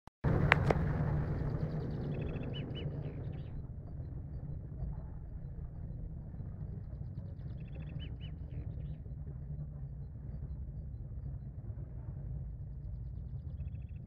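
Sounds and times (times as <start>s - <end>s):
low outdoor rumble: 0.2s - 14.0s
bird calls: 0.6s - 3.6s, 7.4s - 9.0s
small birds chirping: 1.2s - 4.1s, 7.0s - 9.0s.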